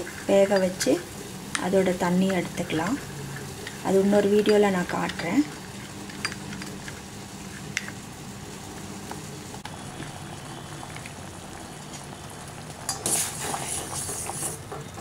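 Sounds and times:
spoon stirring in steel bowl: 0:00.0 - 0:01.0
pot boiling and bubbling: 0:00.0 - 0:15.0.

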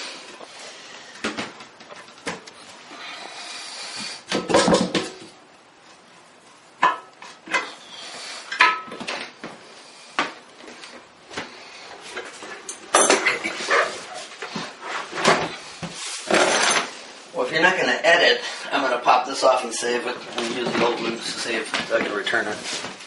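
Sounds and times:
hard objects knocking and clattering: 0:04.3 - 0:05.4.

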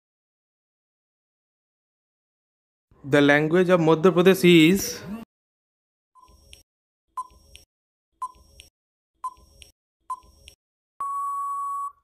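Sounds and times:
long steady beep: 0:11.0 - 0:12.0.

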